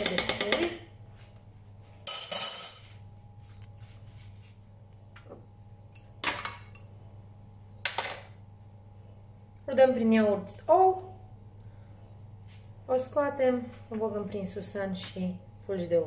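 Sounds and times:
glass bowls clinking: 2.0 - 2.9.

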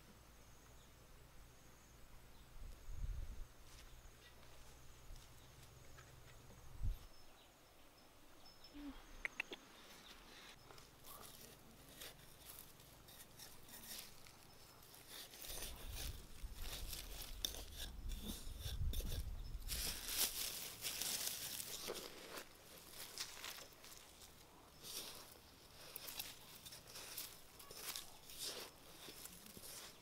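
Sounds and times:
dry soil rustling and crumbling: 10.4 - 30.0.

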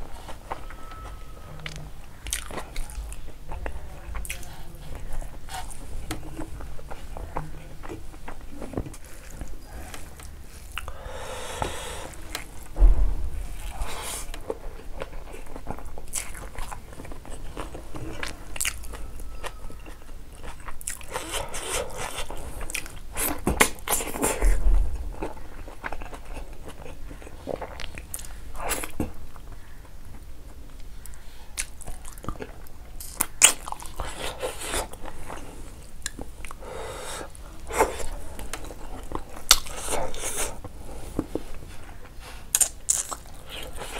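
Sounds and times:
chewing and biting food: 0.3 - 6.2, 15.0 - 24.6, 31.6 - 36.6, 37.7 - 40.7, 41.8 - 43.9.

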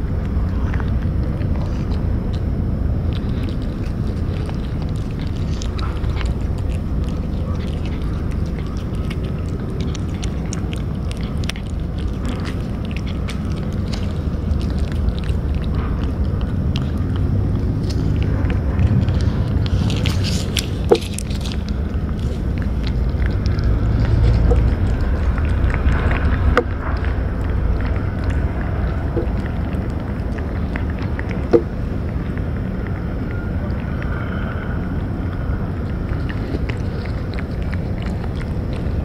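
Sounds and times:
cats chewing wet food: 0.0 - 39.0
steady low rumble: 0.0 - 39.0.

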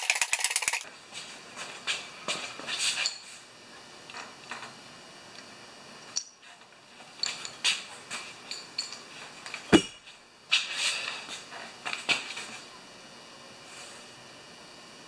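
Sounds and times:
loud thump: 9.7 - 10.0.

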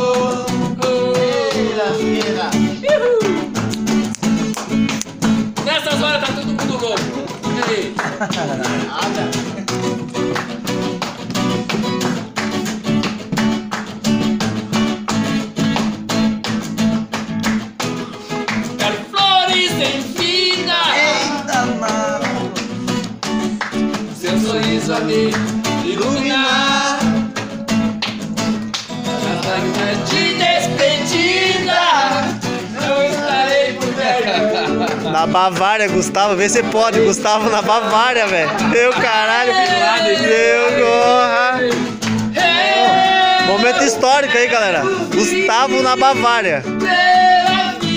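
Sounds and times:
person singing: 0.0 - 3.6, 18.8 - 22.7, 24.0 - 28.0, 29.0 - 35.2, 36.1 - 47.9
acoustic guitar strumming: 0.0 - 47.9.

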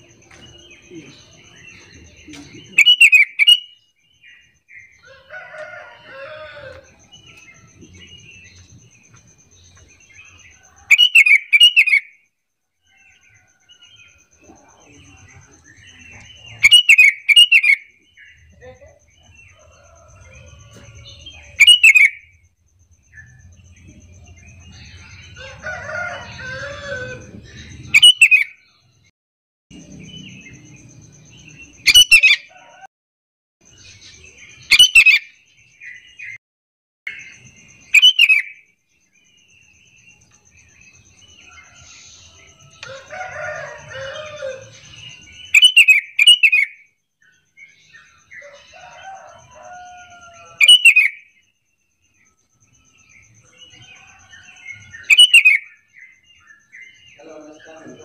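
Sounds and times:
bird calling whistled notes: 2.8 - 3.8, 45.5 - 46.8, 55.0 - 55.7.

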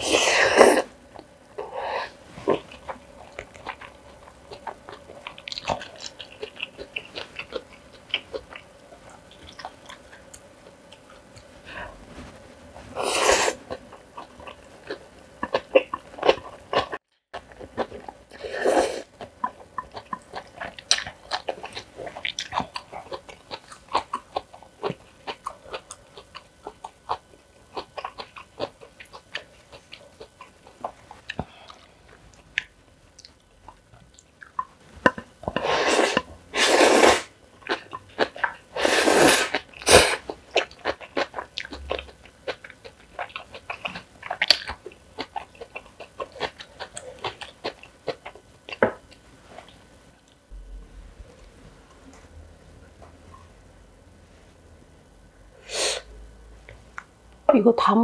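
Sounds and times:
chewing with wet mouth clicks: 2.7 - 11.5, 19.2 - 35.6, 40.5 - 50.4.

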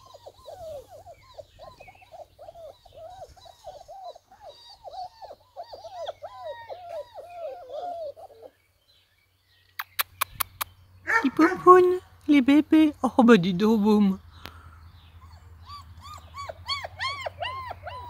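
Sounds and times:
puppies whining and squealing: 0.0 - 8.6, 15.2 - 18.0.

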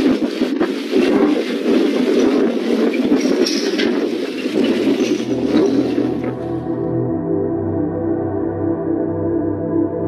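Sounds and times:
wind buffeting microphone: 0.0 - 6.6.

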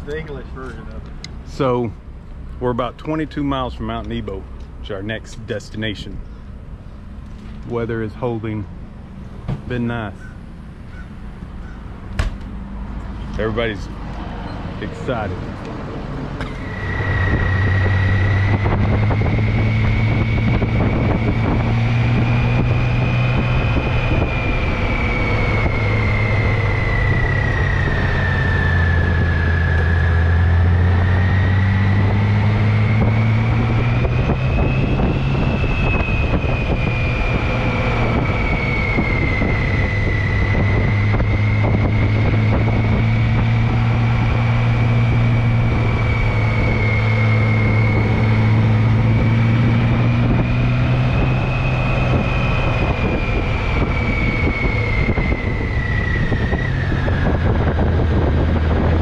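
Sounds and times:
wind rushing on microphone: 11.6 - 59.0
thin high whine: 16.4 - 59.0.

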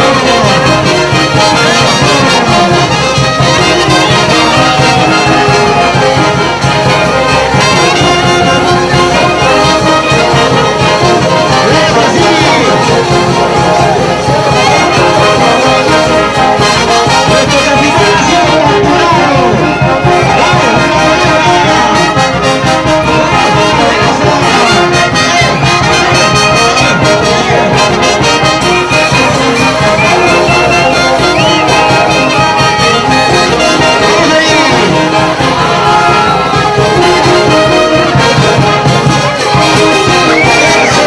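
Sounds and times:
wind band dance music with saxophones: 0.0 - 41.0.

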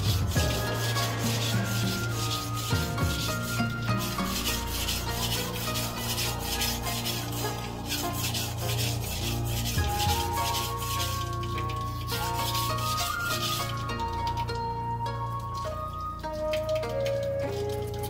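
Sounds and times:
knife scraping on whetstone: 0.0 - 11.3.

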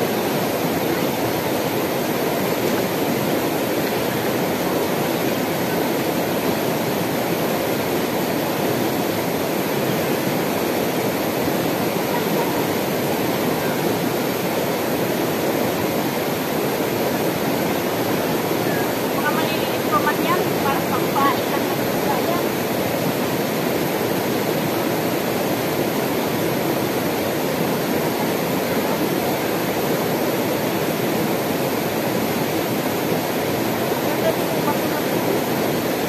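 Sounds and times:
river rushing over stones: 0.0 - 36.0.

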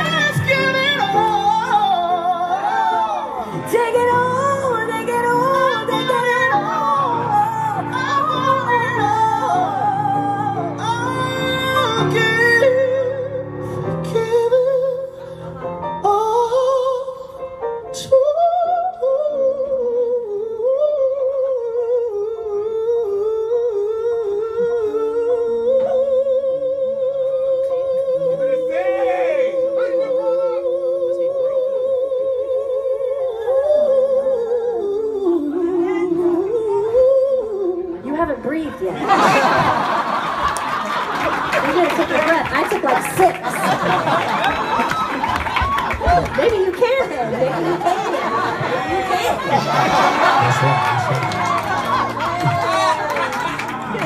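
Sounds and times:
woman and man singing duet: 0.0 - 38.5.

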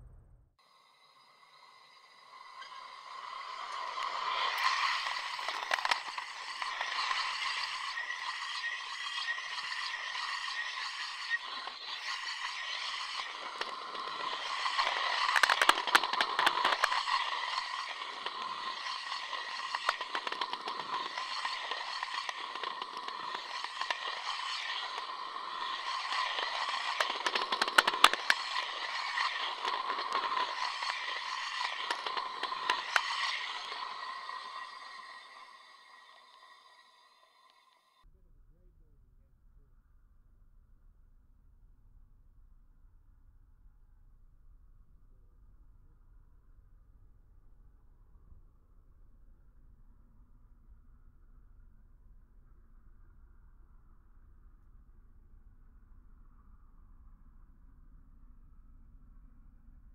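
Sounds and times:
rail ringing hum: 0.0 - 37.4
scraping crackling rail vibration: 0.0 - 37.6.

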